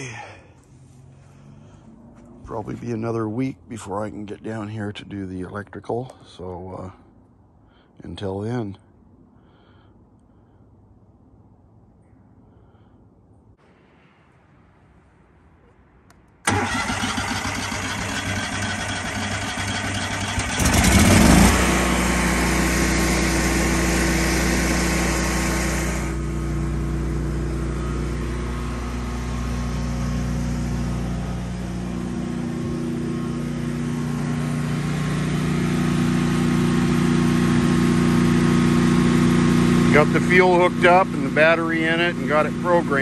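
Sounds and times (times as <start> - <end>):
generator engine starting and running: 0.0 - 4.7, 16.4 - 43.0.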